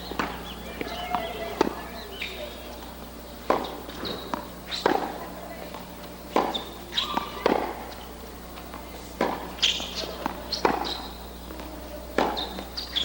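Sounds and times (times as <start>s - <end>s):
shoes squeaking on court: 0.0s - 13.0s
tennis ball struck by racket: 3.4s - 5.2s, 6.3s - 7.8s, 9.1s - 11.1s, 12.2s - 13.0s.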